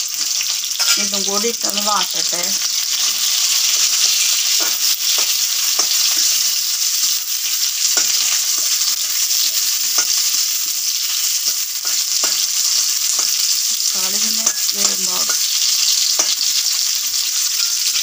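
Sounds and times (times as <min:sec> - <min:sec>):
vegetables sizzling in a wok: 0:00.0 - 0:18.0.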